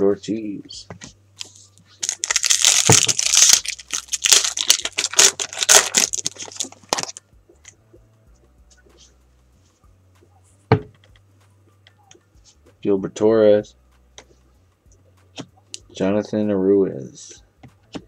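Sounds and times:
cards being handled: 1.0 - 7.2
card pack wrapper tearing: 1.4 - 7.2.

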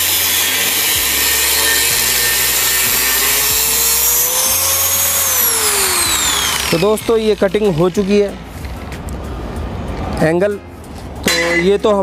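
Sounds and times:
angle grinder cutting steel: 0.0 - 8.3.

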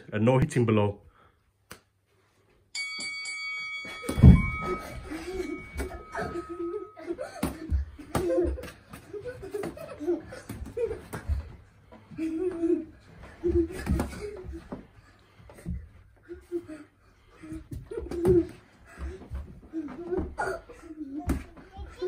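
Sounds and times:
boxing bell ringing: 2.7 - 7.8
children laughing and shrieking: 4.2 - 11.4.

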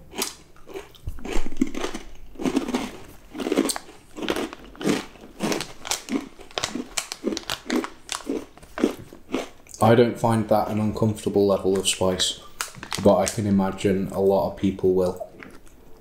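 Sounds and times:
crunchy cheese crisps chewing: 0.1 - 9.8, 12.6 - 13.5, 15.1 - 16.0
snack bag crinkling: 0.1 - 9.8, 11.7 - 13.8.

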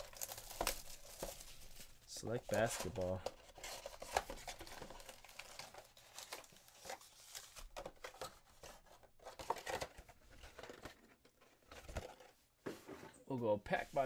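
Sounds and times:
cardboard tearing: 0.0 - 1.5.

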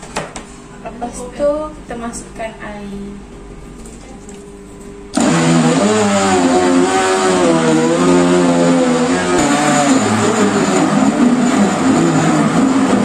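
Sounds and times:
blender motor chopping onions: 5.2 - 13.0.

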